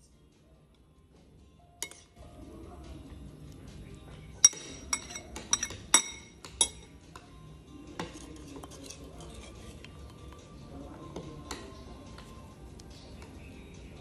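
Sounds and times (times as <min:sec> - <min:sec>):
spoon clinking on ceramic plate: 0:01.8 - 0:02.1, 0:04.4 - 0:06.9.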